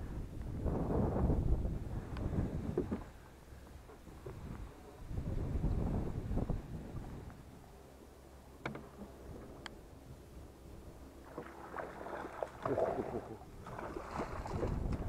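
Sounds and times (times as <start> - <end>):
water lapping at boat hull: 11.0 - 15.0
crackling splashing handling noise: 11.2 - 15.0.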